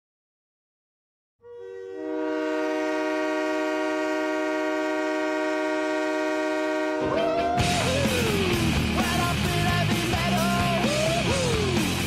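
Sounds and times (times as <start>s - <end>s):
hockey goal horn blast: 1.4s - 7.4s.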